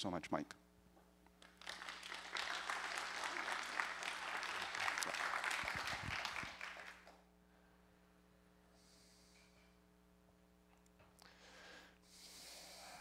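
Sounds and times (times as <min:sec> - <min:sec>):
low electrical hum: 0:00.0 - 0:13.0
audience applauding: 0:01.4 - 0:07.2.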